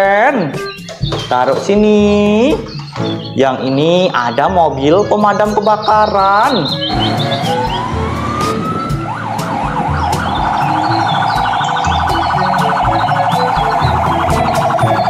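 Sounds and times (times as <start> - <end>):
fire truck siren: 6.7 - 15.0.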